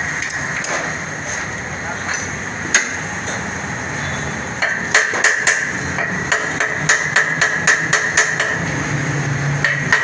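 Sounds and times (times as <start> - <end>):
hammer striking metal: 4.6 - 8.7, 9.6 - 10.0.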